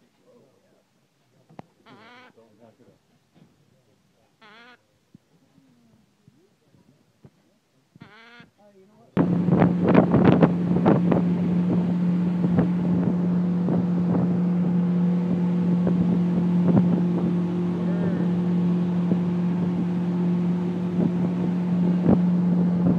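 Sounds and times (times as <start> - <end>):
boat motor droning: 9.2 - 22.9
water rushing along hull: 9.2 - 22.9
wind on microphone: 9.2 - 22.9.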